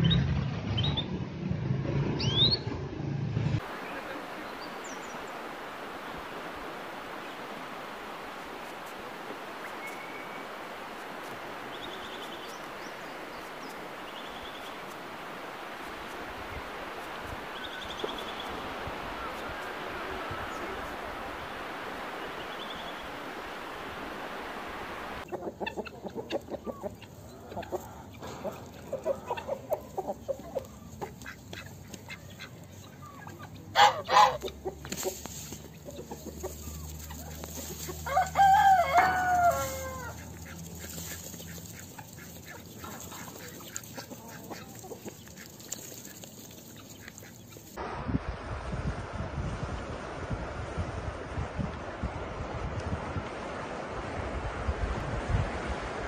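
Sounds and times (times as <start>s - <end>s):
hens clucking: 3.6s - 23.5s, 24.2s - 47.8s
wind and surf: 3.6s - 25.3s, 47.8s - 56.0s
hen squawking: 25.2s - 47.8s.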